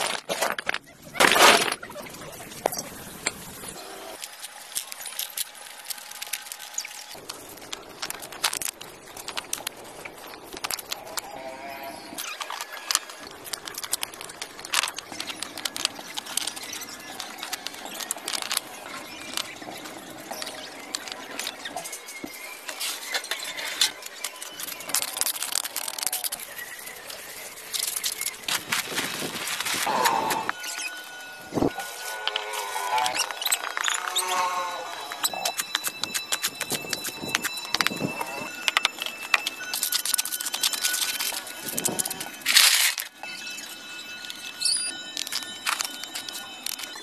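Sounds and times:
clay bricks clinking on concrete: 0:00.0 - 0:01.9, 0:35.0 - 0:47.0.

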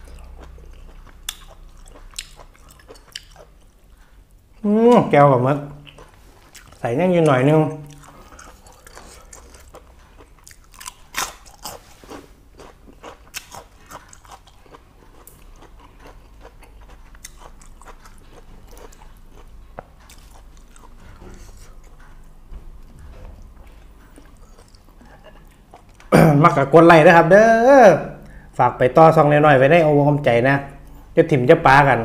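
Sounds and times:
wet chewing clicks and smacks: 0:00.0 - 0:04.6, 0:05.8 - 0:11.8, 0:12.6 - 0:26.1.

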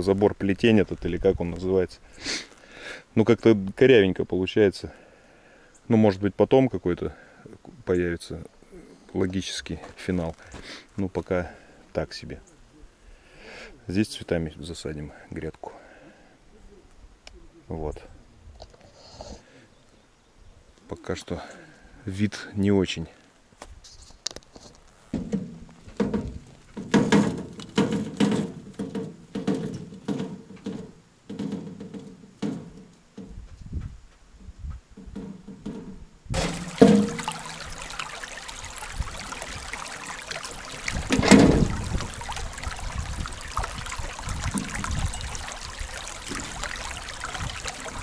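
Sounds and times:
knocks and rustles: 0:23.9 - 0:38.1, 0:40.8 - 0:45.4
running water rushing: 0:36.3 - 0:48.0.

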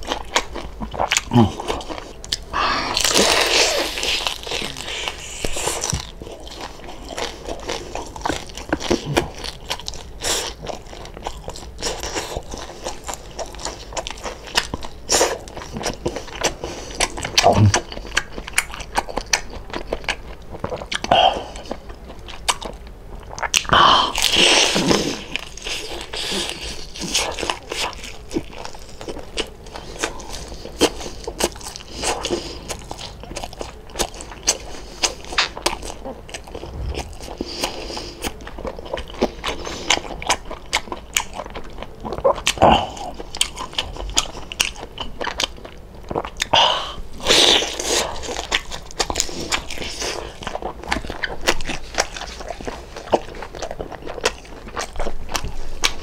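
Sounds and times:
crisp crunching: 0:00.0 - 0:20.1
wet chewing: 0:00.0 - 0:56.0.

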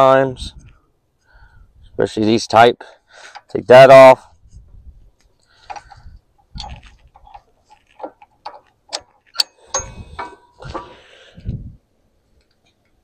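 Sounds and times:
metal clicks and clinks: 0:05.6 - 0:10.8.

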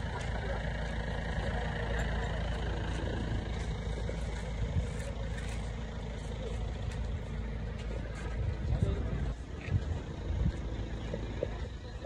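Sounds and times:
faint voices: 0:00.0 - 0:12.0
street traffic rumble: 0:00.0 - 0:12.0.

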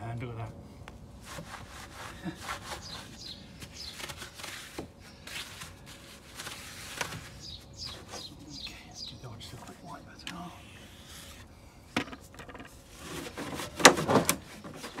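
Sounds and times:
brush scrubbing a wheel: 0:01.2 - 0:03.4.

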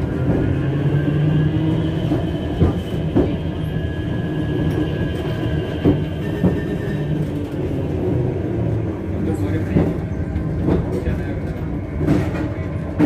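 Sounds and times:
tram running hum: 0:00.0 - 0:13.0
high wheel squeal: 0:01.5 - 0:07.3.

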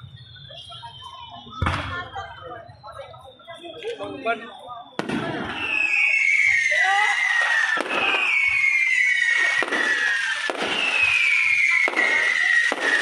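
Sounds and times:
falling firework whistle: 0:00.0 - 0:13.0
fireworks bangs and crackle: 0:00.0 - 0:13.0.

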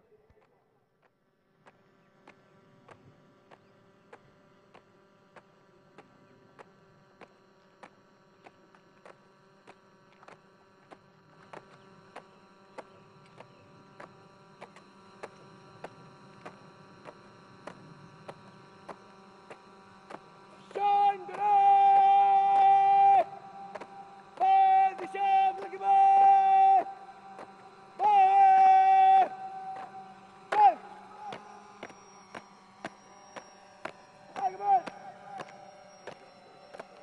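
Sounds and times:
faint hum: 0:00.0 - 0:37.0
marching taps: 0:01.0 - 0:37.0.

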